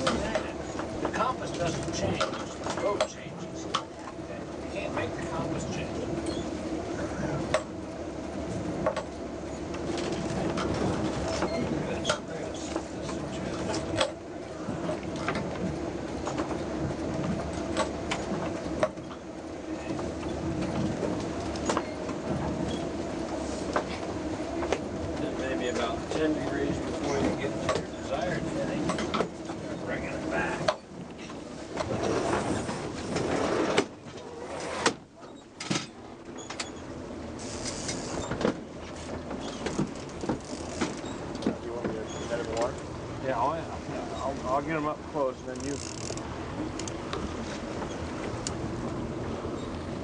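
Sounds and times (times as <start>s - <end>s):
boat engine droning: 0.0s - 50.0s
wind and water noise: 0.0s - 50.0s
knocks and clunks of gear: 37.6s - 42.8s, 45.5s - 48.6s.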